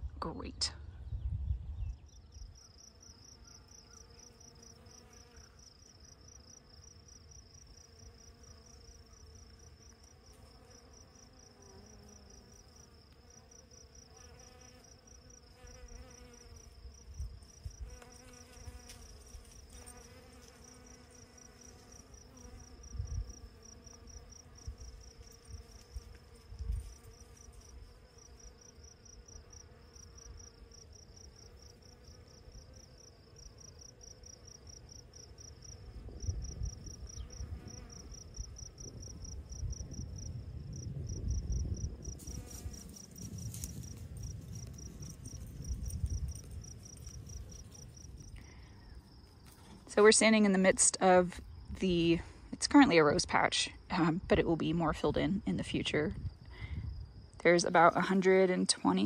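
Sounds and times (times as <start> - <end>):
wind rumble on microphone: 0.0 - 2.6, 22.8 - 23.5, 35.8 - 48.4, 54.2 - 57.4
insects trilling: 2.0 - 53.9.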